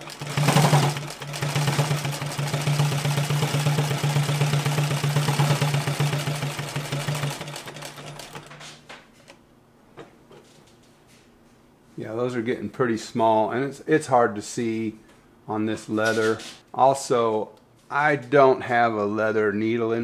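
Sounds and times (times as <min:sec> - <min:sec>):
sewing machine clattering: 0:00.0 - 0:08.8.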